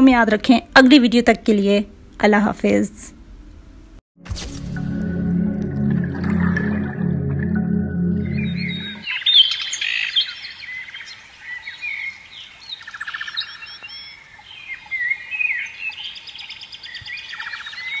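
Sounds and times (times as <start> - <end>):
songbirds chirping and trilling: 8.4 - 18.0.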